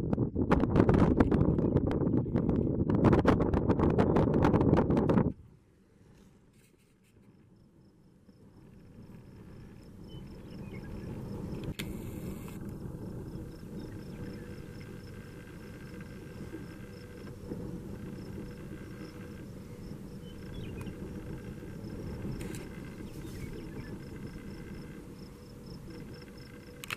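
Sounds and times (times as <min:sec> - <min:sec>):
wind rumbling on microphone: 0:00.0 - 0:26.9
insect chirping: 0:06.6 - 0:26.9.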